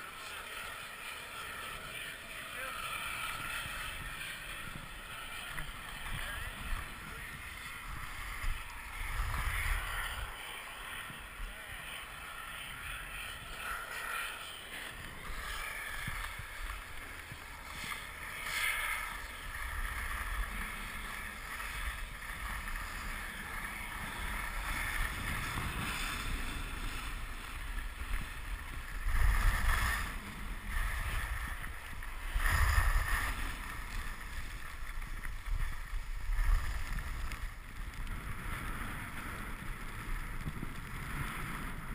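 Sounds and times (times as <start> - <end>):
skis scraping over snow: 0.0 - 41.9
wind on microphone: 0.0 - 41.9.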